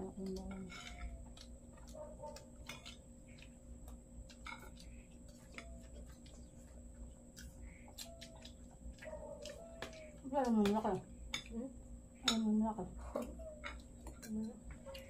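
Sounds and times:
low background hum: 0.0 - 15.0
cutlery clicking on plates: 2.6 - 3.5.

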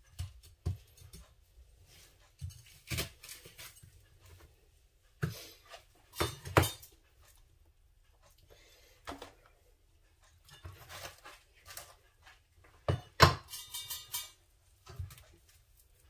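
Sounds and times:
cutlery clicking on dishes: 6.1 - 7.0, 12.8 - 15.2.

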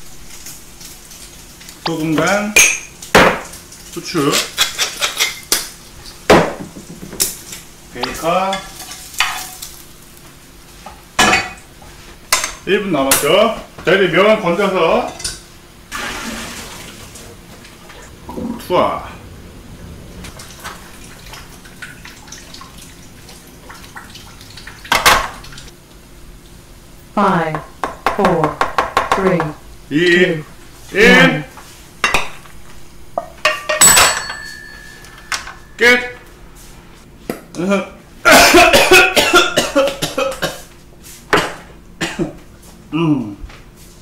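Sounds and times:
sauce sizzling in a frying pan: 0.0 - 6.3, 7.2 - 12.4
utensils scraping in a frying pan: 4.0 - 6.2, 7.4 - 9.8
pans and utensils knocking: 33.2 - 35.7.

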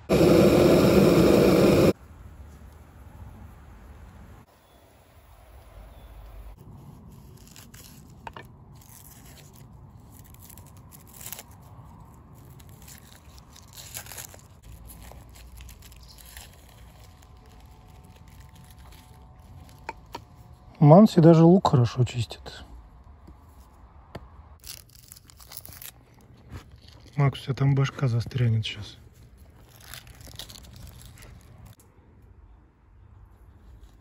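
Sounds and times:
onion skin crackling: 6.6 - 20.8, 24.6 - 31.8.

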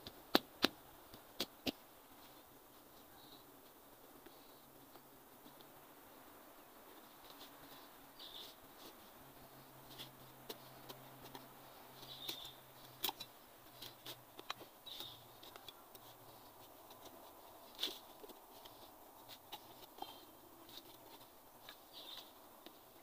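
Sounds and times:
hand tool scraping dry soil: 7.0 - 23.0.

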